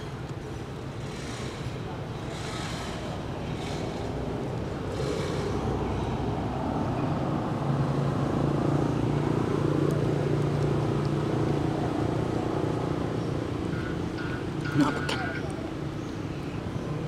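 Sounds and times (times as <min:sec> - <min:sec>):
vehicle engine running: 0:00.0 - 0:16.6.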